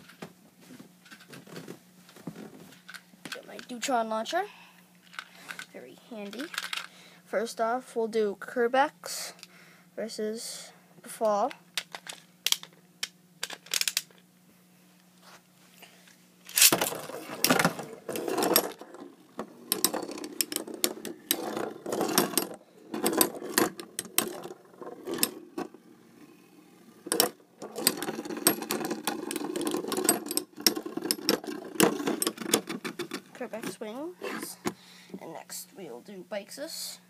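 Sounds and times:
spinning tops whirring: 16.5 - 33.2.

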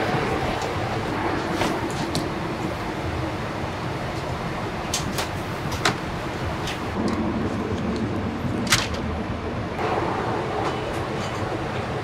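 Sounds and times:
airliner cabin rushing noise: 0.1 - 3.0.

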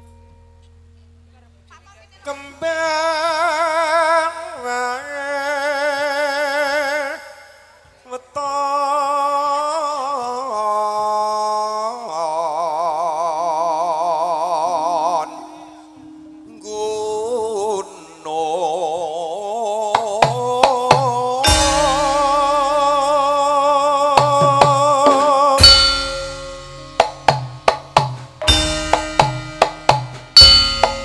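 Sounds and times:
man singing solo: 2.3 - 26.4.

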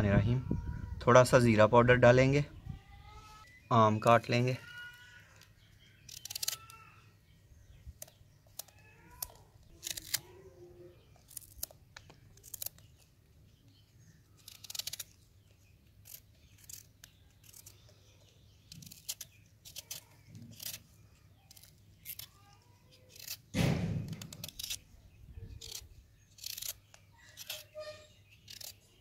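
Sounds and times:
knife cutting raw mango: 16.0 - 29.0.

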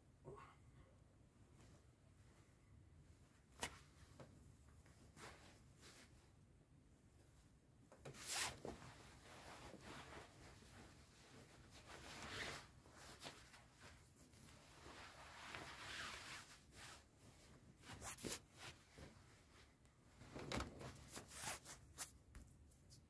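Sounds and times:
cloth rustling: 8.0 - 23.0.

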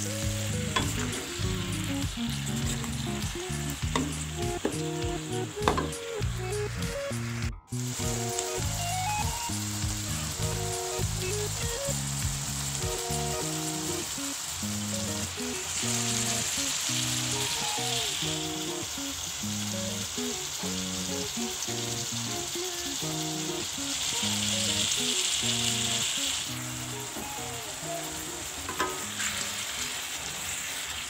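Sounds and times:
background music with stepping melody: 0.0 - 14.1
chicken sizzling in a wok: 0.0 - 31.0.

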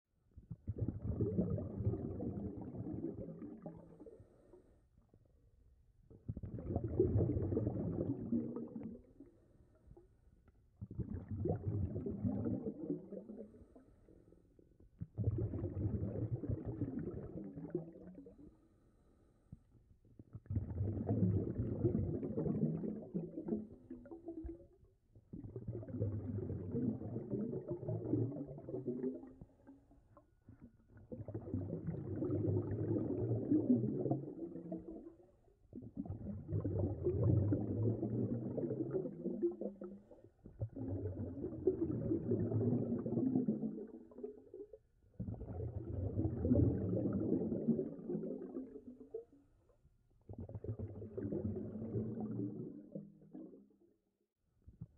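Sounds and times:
underwater exhaled air bubbling: 0.4 - 4.8, 6.1 - 10.1, 10.8 - 18.6, 20.1 - 53.8.

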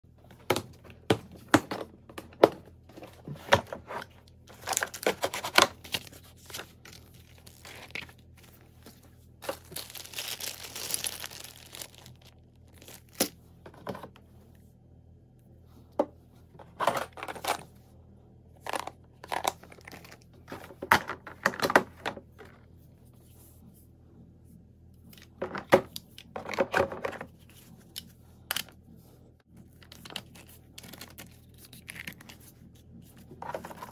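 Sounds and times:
rustling and crinkling: 2.8 - 14.5, 26.3 - 33.9.

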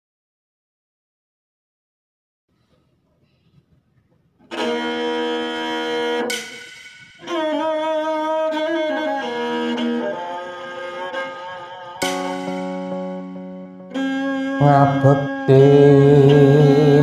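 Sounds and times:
instrumental music of held notes: 4.4 - 17.0.

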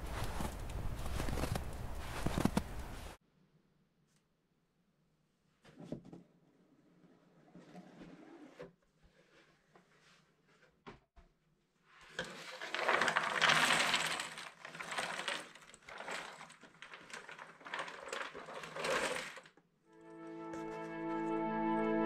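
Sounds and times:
puzzle pieces clattering onto board: 12.2 - 19.5.

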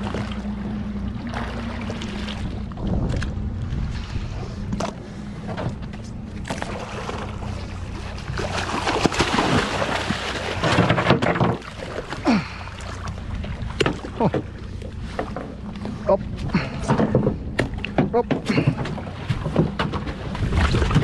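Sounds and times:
boat engine humming: 0.0 - 21.0
fish thrashing and splashing: 6.4 - 21.0.

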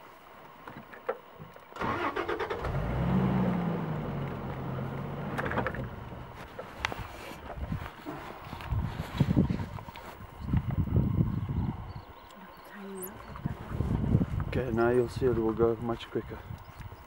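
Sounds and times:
vehicle engine starting and idling: 1.7 - 6.6.

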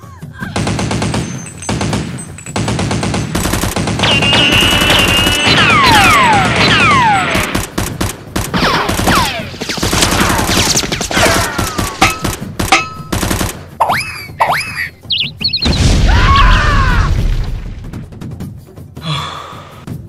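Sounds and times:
music: 0.0 - 20.0
rapid gunfire: 0.4 - 13.8
bullet whistles: 1.1 - 1.7, 4.0 - 5.8.

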